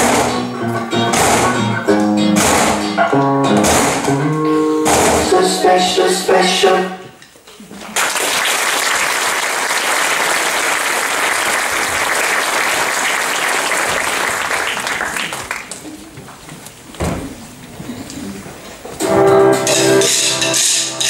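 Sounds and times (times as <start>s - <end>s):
thump: 4.9s - 5.3s
audience applauding: 7.9s - 16.0s.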